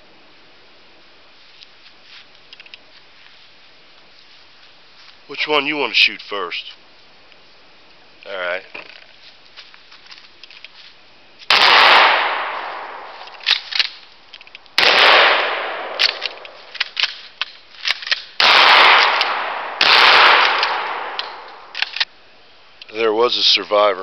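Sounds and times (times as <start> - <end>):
shotgun blasts echoing: 11.5 - 13.9, 14.8 - 16.7, 18.4 - 21.9.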